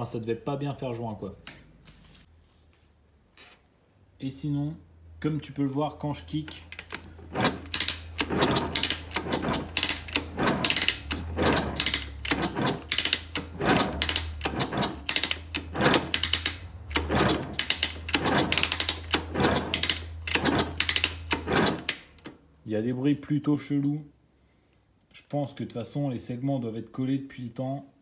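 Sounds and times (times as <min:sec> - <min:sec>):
engine kick-started without starting: 0:06.4 - 0:22.3.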